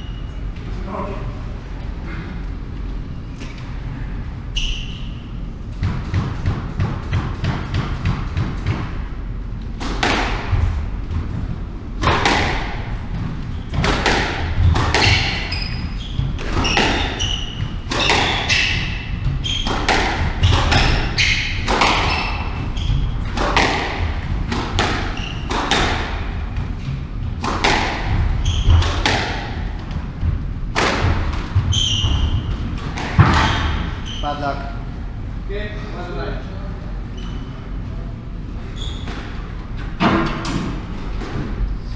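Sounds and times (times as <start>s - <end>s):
squash ball hitting rackets and walls: 5.6s - 34.2s, 38.9s - 41.8s
shoes squeaking on wooden floor: 14.7s - 23.4s, 28.2s - 29.1s, 31.5s - 34.4s.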